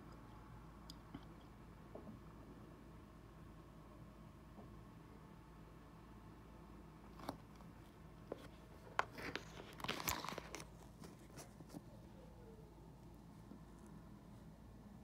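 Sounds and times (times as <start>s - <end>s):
faint steady hum: 0.0s - 15.0s
crackling rustle: 7.2s - 12.1s.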